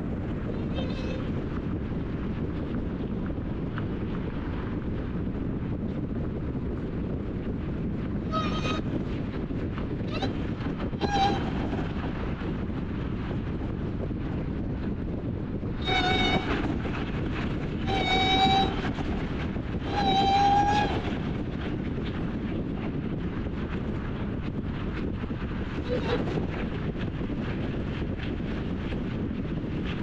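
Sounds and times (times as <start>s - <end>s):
wind rushing over microphone: 0.0s - 30.0s
high-pitched horn blasts: 15.8s - 16.6s, 17.9s - 18.9s.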